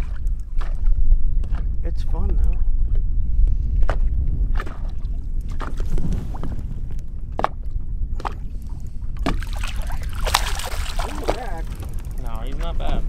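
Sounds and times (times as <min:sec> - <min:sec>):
low rumble: 0:00.0 - 0:13.0
fish splashing in water: 0:09.2 - 0:12.2.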